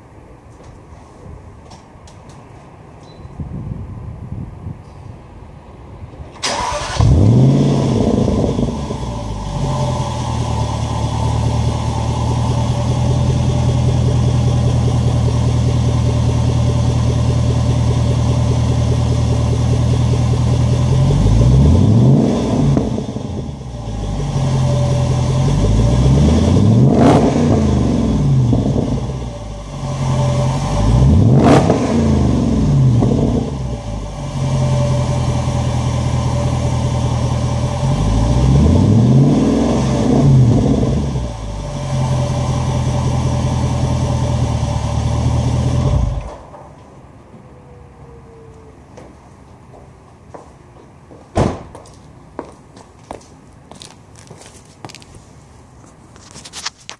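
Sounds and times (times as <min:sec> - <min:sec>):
car engine revving: 0:06.4 - 0:46.3
car engine idling: 0:06.5 - 0:39.0, 0:39.9 - 0:46.4.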